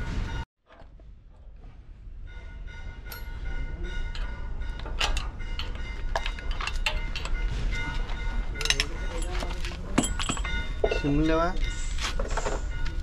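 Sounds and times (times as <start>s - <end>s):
steady high ringing: 2.0s - 13.0s
metal tools clanking on wheel hub: 3.0s - 13.0s.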